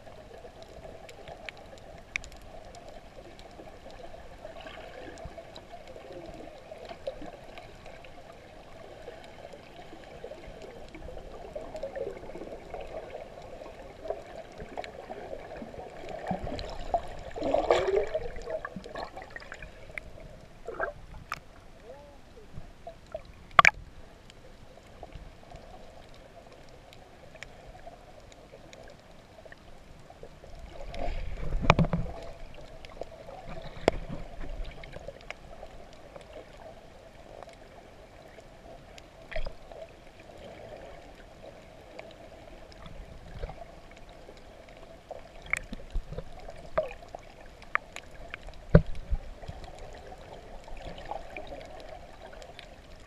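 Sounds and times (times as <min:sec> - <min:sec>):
low rush of water: 0:00.0 - 0:53.0
muffled underwater movement: 0:00.0 - 0:53.0
underwater clicks and knocks: 0:16.2 - 0:21.5, 0:22.5 - 0:23.9, 0:31.3 - 0:34.7, 0:45.4 - 0:47.0, 0:47.6 - 0:49.7.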